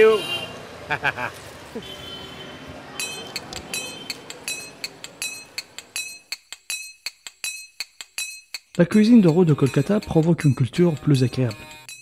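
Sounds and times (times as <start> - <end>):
street noise: 0.0 - 7.6, 8.6 - 11.9
metallic clinking: 3.0 - 10.6.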